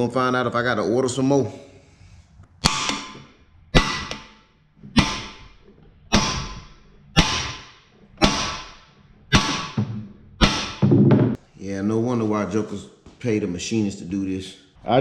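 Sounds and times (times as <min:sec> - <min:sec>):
hammer striking metal tool: 0:02.6 - 0:11.4.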